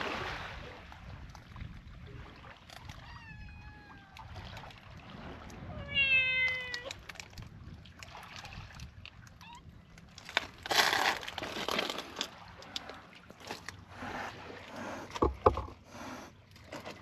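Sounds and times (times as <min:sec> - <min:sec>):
cat meowing: 0:03.0 - 0:04.2, 0:05.7 - 0:06.9.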